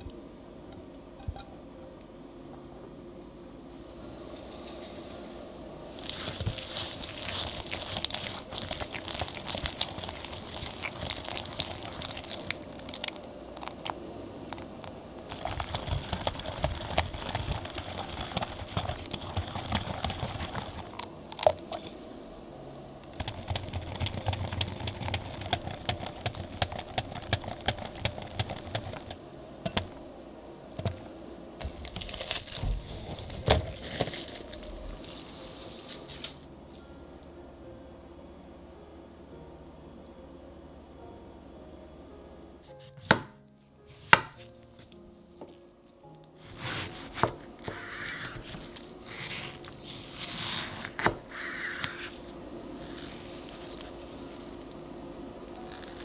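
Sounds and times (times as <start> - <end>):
cling wrap crinkling: 5.9 - 21.9, 31.6 - 36.5, 48.2 - 51.1.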